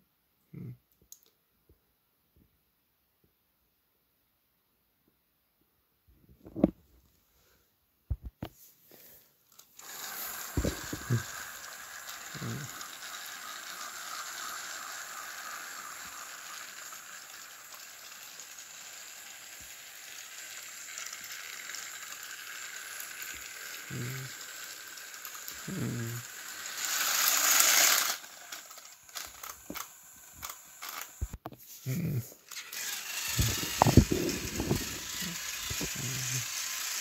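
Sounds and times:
toy train running on track: 0:09.5 - 0:31.4, 0:32.5 - 0:37.0.

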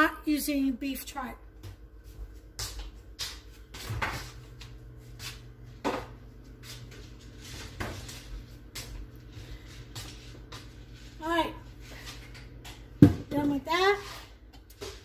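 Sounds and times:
kitchen knocks and clacks: 0:12.3 - 0:13.6.

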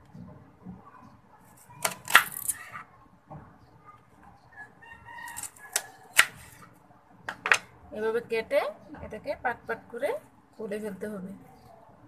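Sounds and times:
knife cutting onion: 0:01.6 - 0:02.8, 0:05.3 - 0:06.6.

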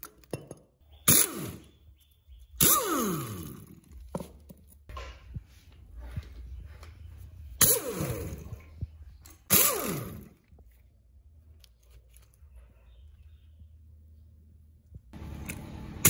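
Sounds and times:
pneumatic impact wrench: 0:01.0 - 0:01.7, 0:02.6 - 0:03.8, 0:07.6 - 0:08.6, 0:09.4 - 0:10.4.

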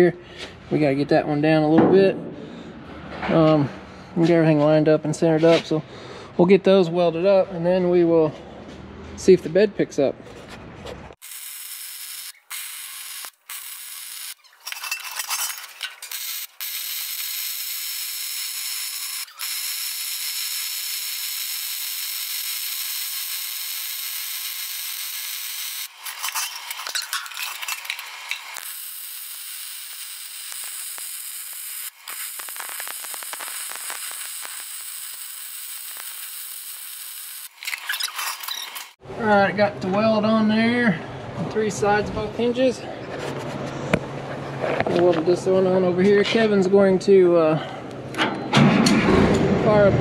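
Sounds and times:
welding arc crackling: 0:11.2 - 0:39.0.

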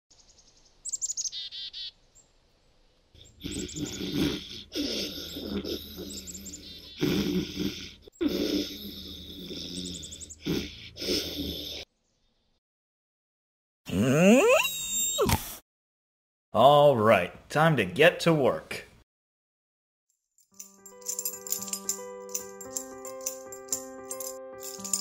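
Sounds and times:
birds chirping: 0:00.1 - 0:02.4, 0:03.2 - 0:10.9
cartoon dog snoring: 0:03.2 - 0:11.9, 0:13.9 - 0:15.6.

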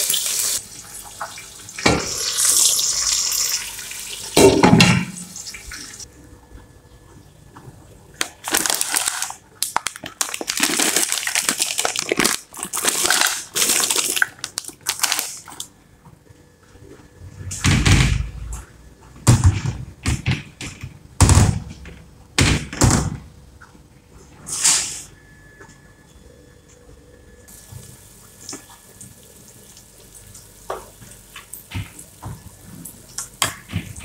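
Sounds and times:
plastic bag crinkling: 0:08.2 - 0:15.7.

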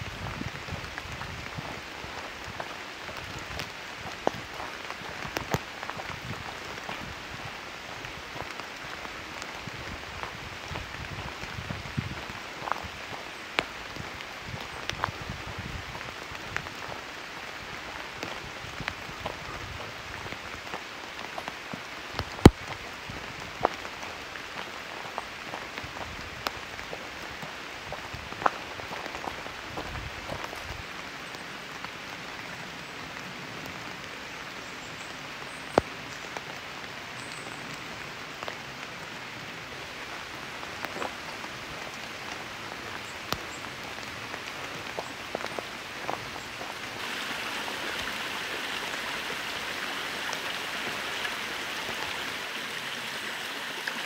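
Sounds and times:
steady rain falling: 0:00.0 - 0:54.0
sharp water drips: 0:40.0 - 0:54.0.

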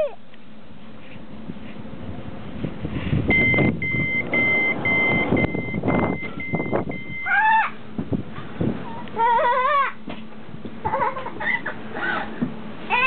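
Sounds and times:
train door signal beeps: 0:03.3 - 0:07.3.

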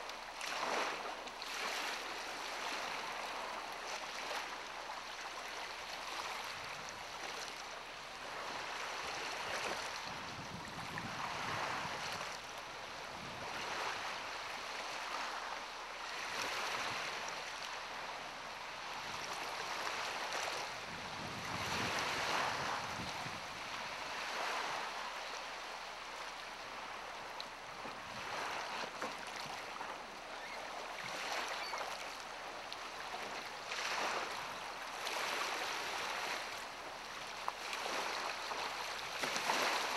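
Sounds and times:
small waves lapping: 0:00.0 - 0:39.9
wind buffeting microphone: 0:10.0 - 0:12.2, 0:20.9 - 0:23.7.

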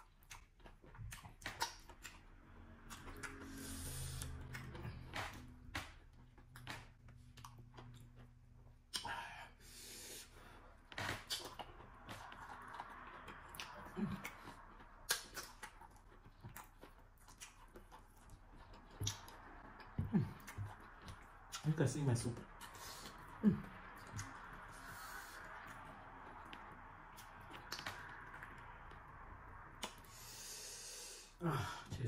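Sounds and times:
wet mouth clicks and smacks: 0:00.0 - 0:02.2, 0:11.0 - 0:19.8, 0:23.9 - 0:24.6, 0:25.6 - 0:28.9, 0:29.8 - 0:30.1
chewing: 0:00.0 - 0:09.2, 0:10.1 - 0:30.4.

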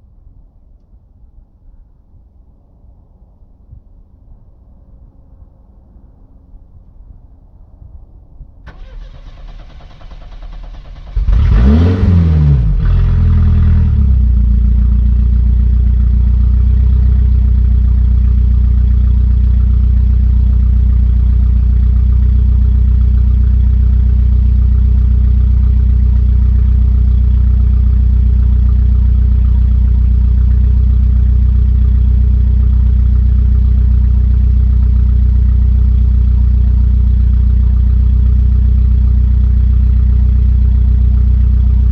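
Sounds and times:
car engine cranking: 0:08.7 - 0:14.1
car engine revving and idling: 0:08.7 - 0:41.9.

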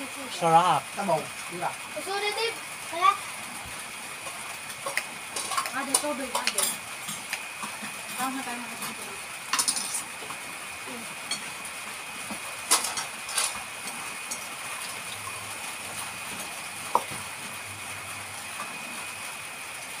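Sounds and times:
dishes clinking: 0:09.6 - 0:10.0, 0:11.3 - 0:11.5.

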